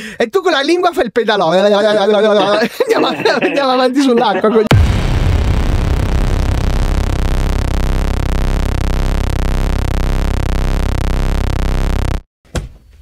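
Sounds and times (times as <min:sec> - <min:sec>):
distorted electronic synth music: 0:02.4 - 0:12.3.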